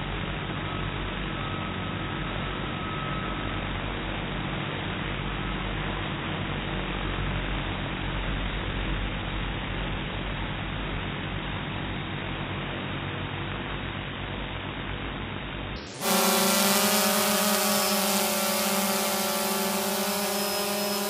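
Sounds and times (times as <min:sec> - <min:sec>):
drone motors humming: 0:15.8 - 0:21.0
propeller hiss: 0:15.8 - 0:21.0.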